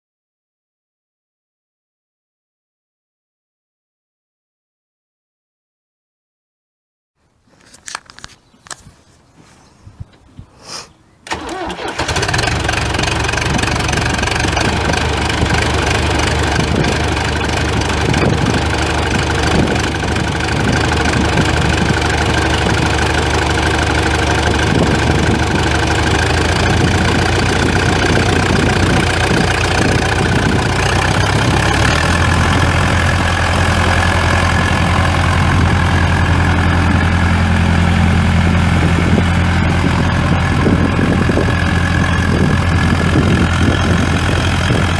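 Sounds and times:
diesel tractor engine starting: 11.2s - 44.9s
tractor engine idling: 11.2s - 44.9s.

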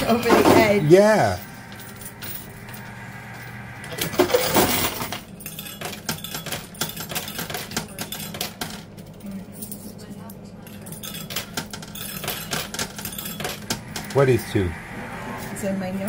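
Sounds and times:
low steady hum: 0.0s - 16.0s
coins clinking in machine: 1.3s - 3.0s, 3.9s - 14.1s.

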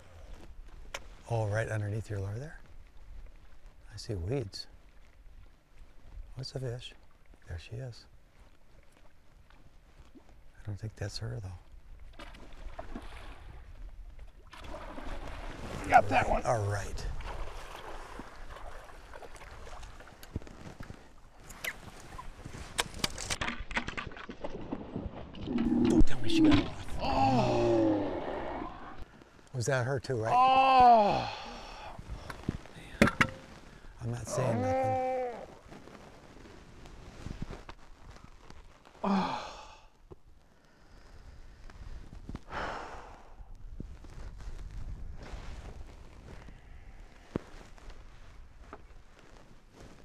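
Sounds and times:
person sighing: 26.9s - 28.3s, 30.3s - 32.0s, 39.0s - 39.9s, 42.5s - 43.4s.

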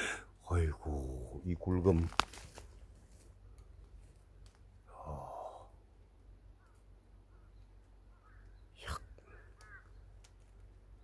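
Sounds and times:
person sighing: 4.9s - 5.8s.

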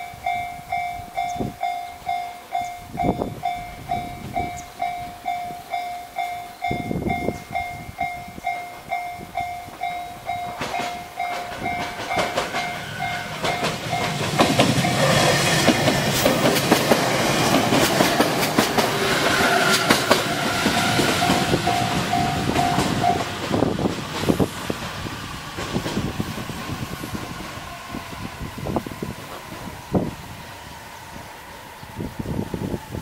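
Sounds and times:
level crossing warning bell: 0.0s - 15.4s, 20.8s - 23.3s
train wheels clicking over rail joints: 7.1s - 30.2s.

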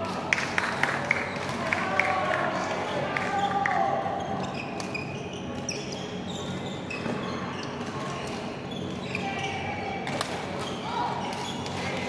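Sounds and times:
shoes squeaking on court: 4.1s - 12.0s.

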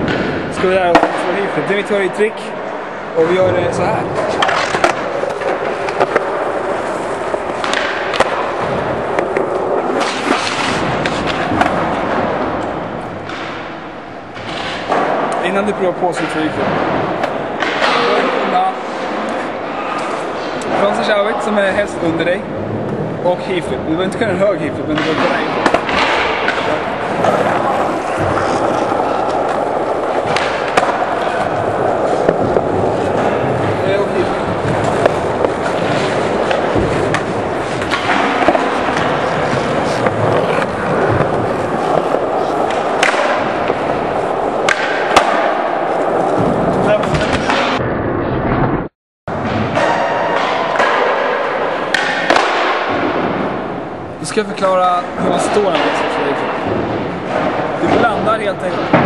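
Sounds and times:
skateboard wheels rolling on concrete: 2.6s - 15.4s, 24.7s - 49.9s.

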